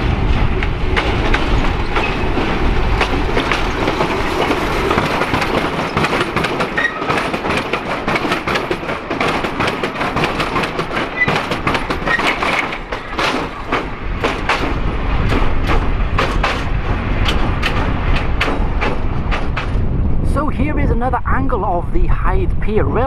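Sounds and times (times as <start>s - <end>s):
low rumble: 0.0s - 6.6s, 12.7s - 23.0s
train wheels clicking over rail joints: 0.0s - 20.0s.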